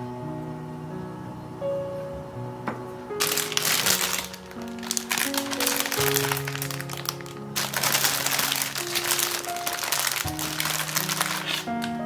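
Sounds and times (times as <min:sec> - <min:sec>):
solo piano music: 0:00.0 - 0:12.0
plastic bag crinkling: 0:03.2 - 0:12.0.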